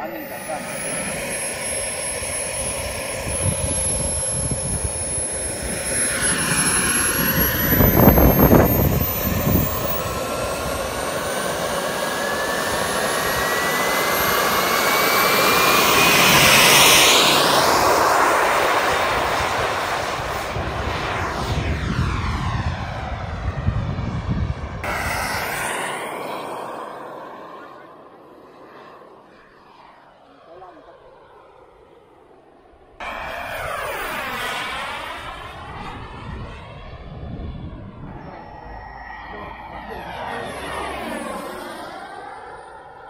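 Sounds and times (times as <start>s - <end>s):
model jet turbine whining: 0.0s - 43.0s
low rumble: 33.0s - 42.1s.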